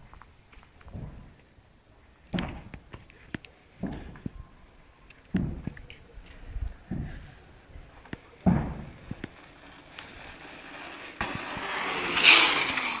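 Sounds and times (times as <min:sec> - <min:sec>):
bike rushing past: 0:08.8 - 0:13.0.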